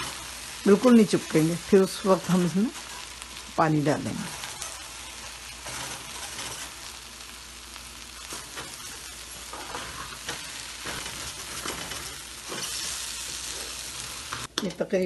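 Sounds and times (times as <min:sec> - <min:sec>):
rice sizzling in hot oil: 0:00.0 - 0:14.5
wooden spoon scraping grains: 0:08.3 - 0:14.5.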